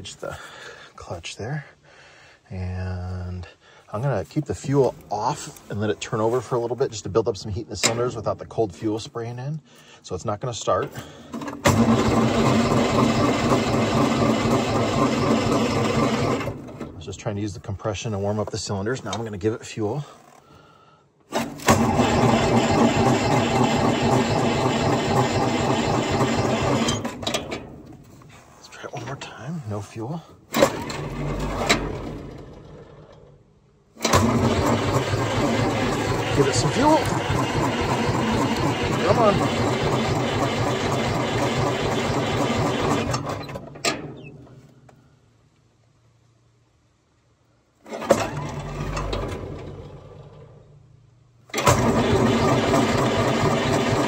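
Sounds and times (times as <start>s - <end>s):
electric starter cranking diesel engine: 3.7s - 8.4s, 10.7s - 17.6s, 18.8s - 29.4s, 30.1s - 44.3s, 47.8s - 50.8s, 51.4s - 54.0s.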